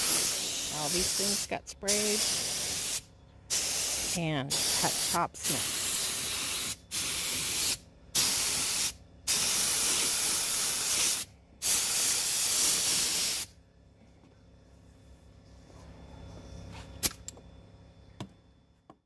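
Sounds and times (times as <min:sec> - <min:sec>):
paint spray gun hissing: 0:00.0 - 0:13.5.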